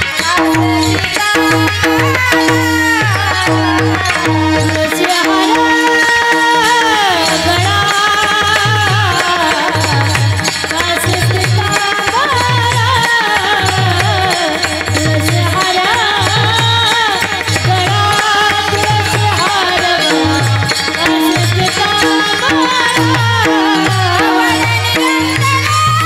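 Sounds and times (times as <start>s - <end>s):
barrel drum rhythm: 0.0s - 26.0s
harmonium: 0.0s - 26.0s
person singing: 0.0s - 26.0s.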